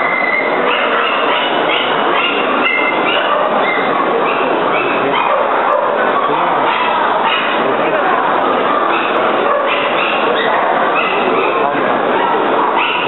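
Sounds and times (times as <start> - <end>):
crowd noise in hall: 0.0 - 13.0.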